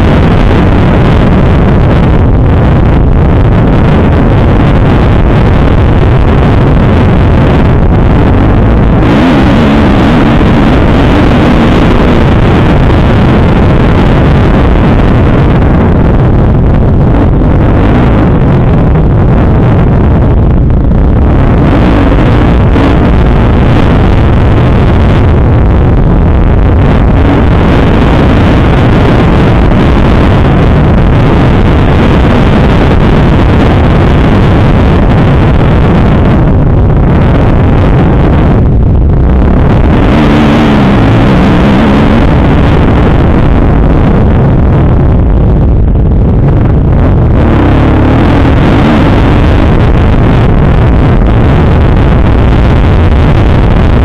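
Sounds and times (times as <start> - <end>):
wind buffeting microphone: 0.0 - 54.0
dirt bike engine revving: 9.0 - 11.9.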